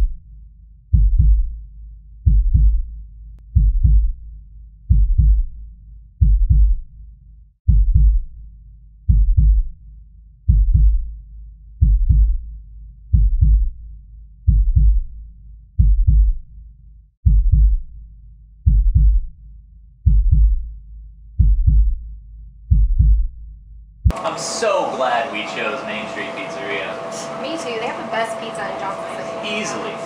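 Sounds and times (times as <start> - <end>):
heartbeat thumps: 0.9 - 1.6, 2.2 - 4.2, 4.9 - 5.6, 6.2 - 6.9, 7.7 - 8.4, 9.1 - 9.8, 10.5 - 11.2, 11.8 - 12.5, 13.1 - 13.8, 14.4 - 15.2, 15.8 - 16.5, 17.2 - 17.9, 18.6 - 19.4, 20.0 - 20.8, 21.4 - 24.2
low steady drone: 24.1 - 30.0.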